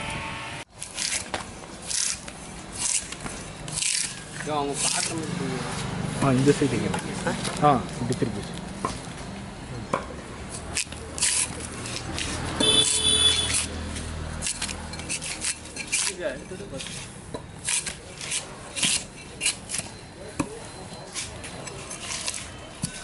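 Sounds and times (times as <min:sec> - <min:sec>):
drawknife scraping wood: 0:00.8 - 0:05.2, 0:10.6 - 0:20.0, 0:21.1 - 0:23.0.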